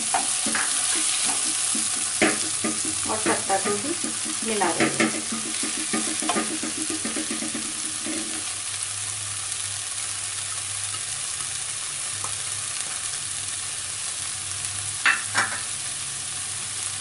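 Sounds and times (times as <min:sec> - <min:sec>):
spatula scraping pan: 0:00.0 - 0:08.5
vegetables sizzling in a pan: 0:00.0 - 0:17.0.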